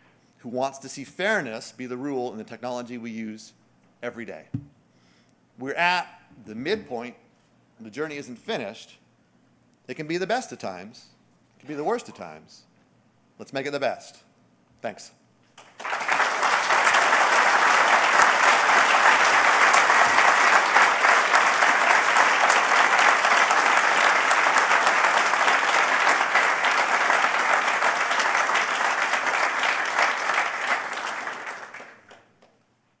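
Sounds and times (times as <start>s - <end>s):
audience applauding: 15.6s - 32.3s.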